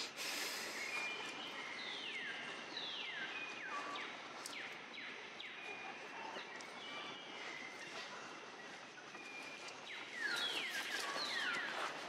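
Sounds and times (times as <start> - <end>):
forest background noise: 0.0 - 12.0.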